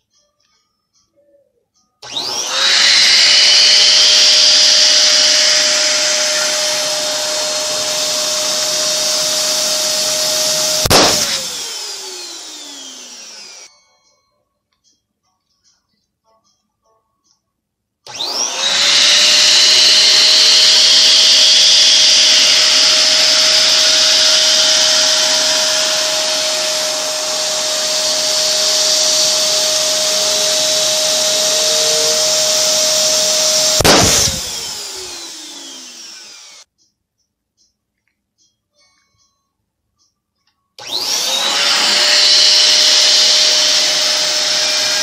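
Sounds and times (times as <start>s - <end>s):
electric pump whine: 2.0s - 13.7s, 18.1s - 36.7s, 40.8s - 45.0s
balloon bursting: 10.5s - 11.5s, 33.6s - 35.1s.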